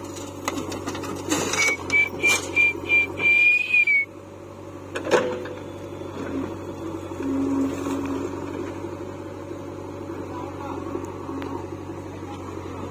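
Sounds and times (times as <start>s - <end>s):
diesel engine running: 0.0s - 12.9s
short high whistle notes: 1.6s - 4.1s.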